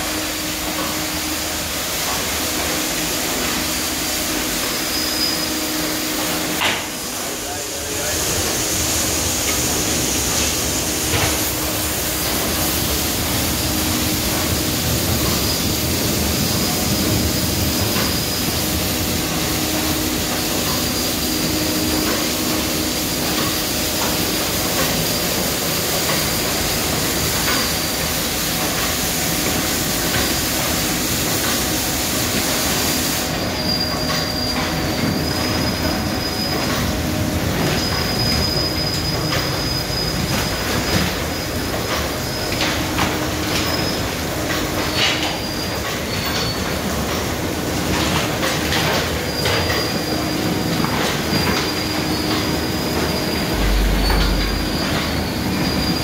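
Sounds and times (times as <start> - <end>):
high machinery squeal: 4.4 - 6.5, 14.7 - 28.2, 33.2 - 47.2, 47.8 - 56.0
low hum: 53.5 - 55.9.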